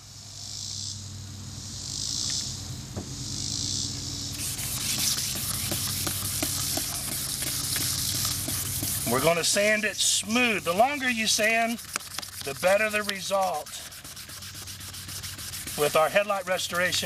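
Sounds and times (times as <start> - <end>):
spray bottle squirts: 4.4 - 9.3, 11.2 - 16.0
sandpaper scrubbing plastic: 4.4 - 17.0.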